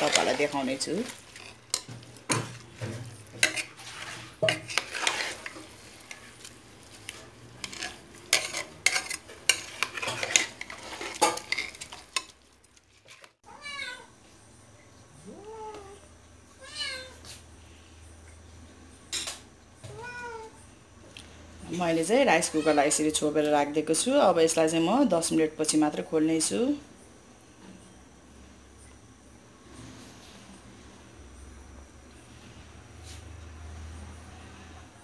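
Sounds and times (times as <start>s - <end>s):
metal spoon scraping a pot: 0.0s - 13.3s
cat meowing: 16.6s - 17.2s, 19.8s - 20.6s.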